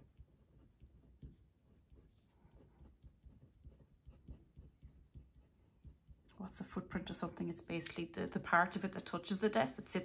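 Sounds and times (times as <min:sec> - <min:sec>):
pen scratching on paper: 0:00.0 - 0:06.3.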